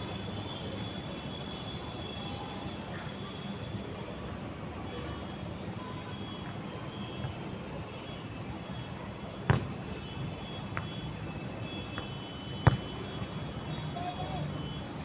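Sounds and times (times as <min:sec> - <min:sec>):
steady outdoor background hum: 0:00.0 - 0:15.0
football being kicked: 0:09.5 - 0:09.7, 0:12.6 - 0:12.8.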